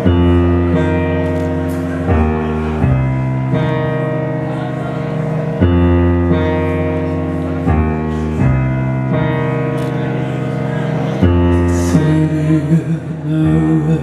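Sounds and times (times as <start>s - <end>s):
deep bass: 0.0s - 4.6s
band playing sustained chords: 0.0s - 14.0s.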